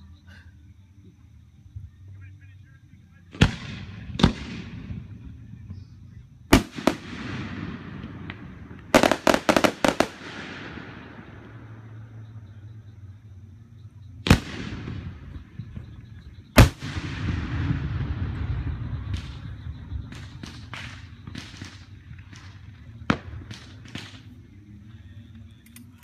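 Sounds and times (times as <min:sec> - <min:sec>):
fireworks booming: 0:03.3 - 0:12.2, 0:14.2 - 0:24.3
firework pops and crackles: 0:03.4 - 0:05.0, 0:06.5 - 0:10.9, 0:14.2 - 0:15.4, 0:16.6 - 0:24.4.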